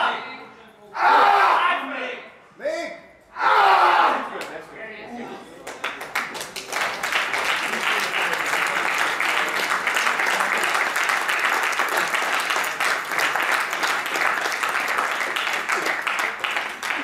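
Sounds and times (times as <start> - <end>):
crowd applauding: 5.6 - 17.0.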